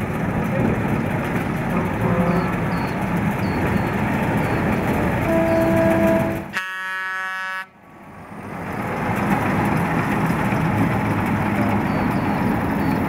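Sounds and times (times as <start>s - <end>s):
buzzy horn note: 5.3s - 7.7s
truck driving past: 7.8s - 13.0s.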